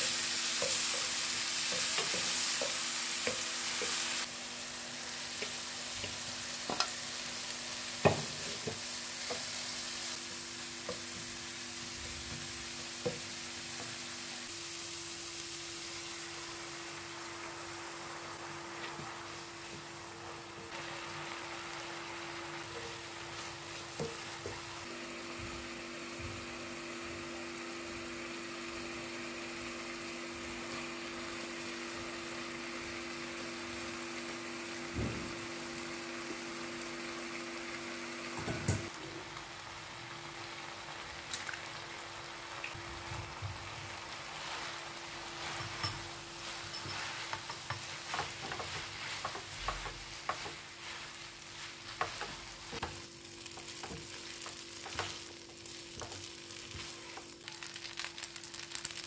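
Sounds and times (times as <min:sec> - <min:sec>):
food sizzling in a frying pan: 0:00.0 - 0:59.0
metal tongs scraping a pan: 0:45.4 - 0:50.6.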